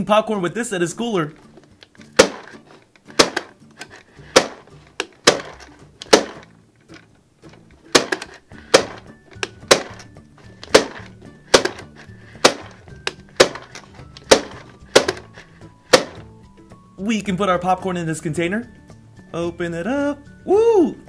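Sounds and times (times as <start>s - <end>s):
background music: 0.0s - 21.0s
toy popcorn maker snapping: 1.7s - 6.5s, 7.9s - 16.2s.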